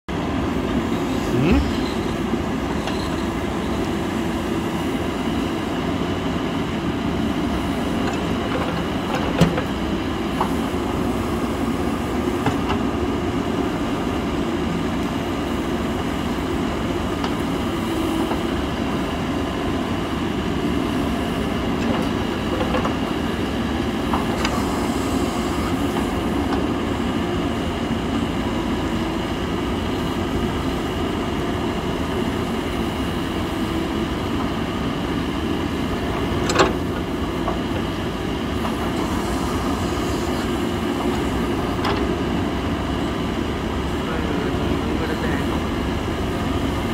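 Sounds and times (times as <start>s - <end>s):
diesel engine running under load: 0.1s - 46.9s
backhoe digging soil: 20.7s - 29.4s.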